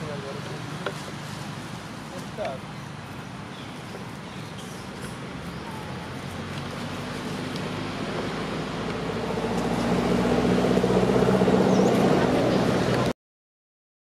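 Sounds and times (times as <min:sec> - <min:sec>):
engine humming: 0:00.0 - 0:13.1.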